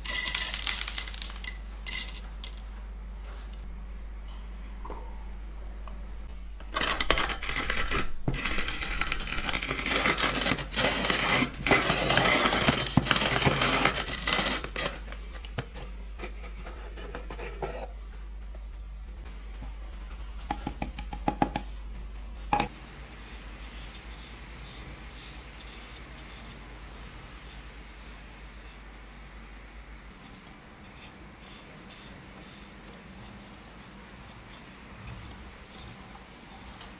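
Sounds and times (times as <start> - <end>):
hand coffee grinder crunching beans: 0.0 - 2.6, 6.8 - 15.0.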